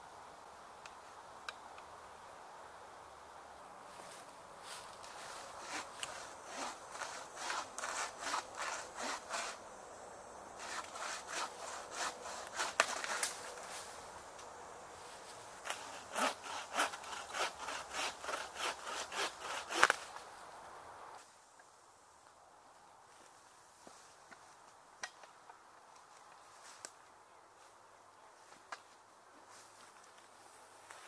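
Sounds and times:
hand saw cutting branch: 0:05.1 - 0:09.6, 0:10.6 - 0:13.5, 0:15.6 - 0:20.1.

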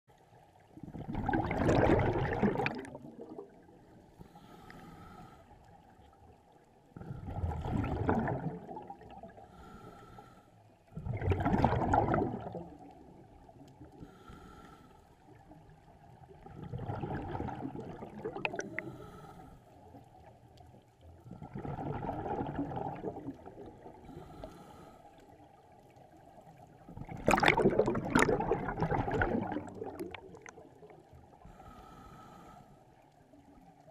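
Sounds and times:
diver exhaling bubbles: 0:00.8 - 0:03.7, 0:07.0 - 0:09.4, 0:11.0 - 0:13.0, 0:16.4 - 0:19.2, 0:21.3 - 0:24.4, 0:26.9 - 0:30.8.

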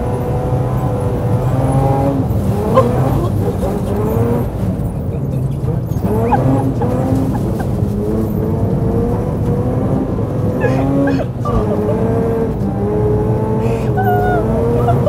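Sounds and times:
car engine revving hard: 0:00.0 - 0:15.0.

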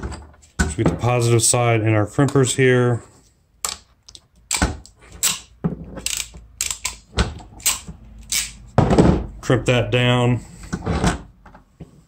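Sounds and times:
wire crimpers clicking: 0:03.6 - 0:08.6.

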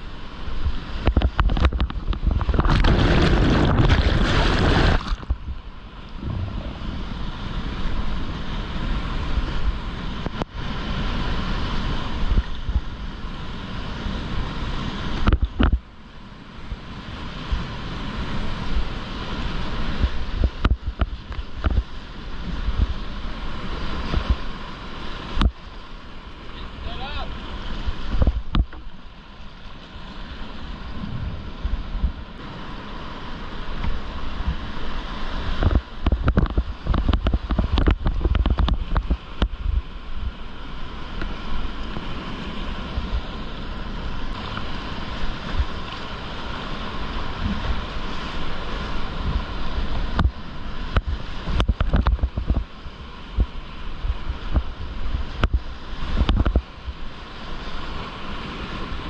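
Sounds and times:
water splashing: 0:00.9 - 0:08.9
knocks and rumbling on microphone: 0:01.0 - 0:07.6, 0:15.2 - 0:15.8, 0:20.0 - 0:21.9, 0:28.0 - 0:28.9, 0:30.9 - 0:32.3, 0:35.6 - 0:40.4, 0:50.1 - 0:52.7, 0:53.3 - 0:56.7.

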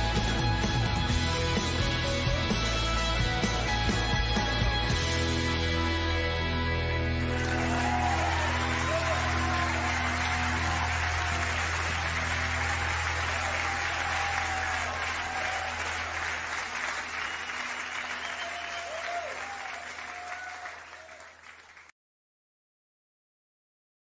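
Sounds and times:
live music held notes and drone: 0:00.0 - 0:20.0
audience applause: 0:07.0 - 0:21.9.

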